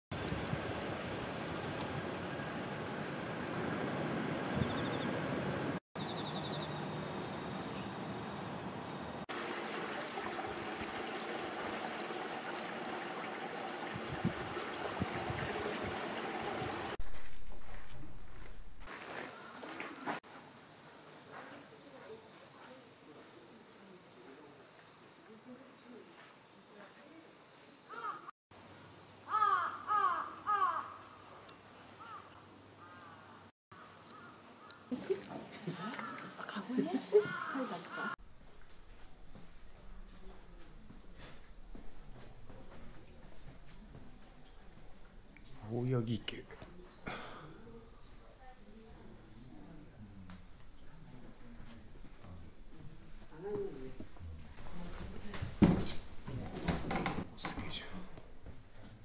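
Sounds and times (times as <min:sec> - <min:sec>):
crow cawing: 0:27.9 - 0:28.3, 0:29.3 - 0:31.2, 0:32.0 - 0:33.2, 0:33.8 - 0:34.8, 0:35.8 - 0:36.4, 0:37.3 - 0:38.2.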